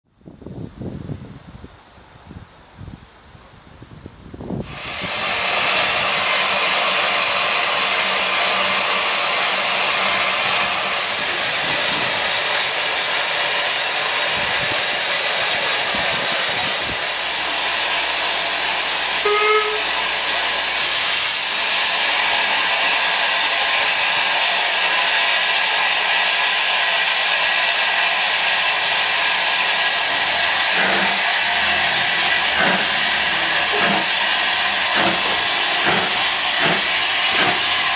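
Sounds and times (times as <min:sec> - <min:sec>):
steam locomotive hissing: 0:03.9 - 0:37.9
locomotive exhaust beats: 0:28.9 - 0:37.9.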